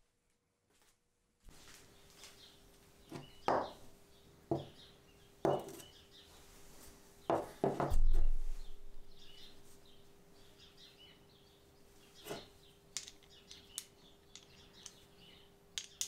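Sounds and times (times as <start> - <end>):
birds chirping faintly: 1.6 - 16.0
metal parts knocking on wood: 13.0 - 15.1, 15.8 - 16.0.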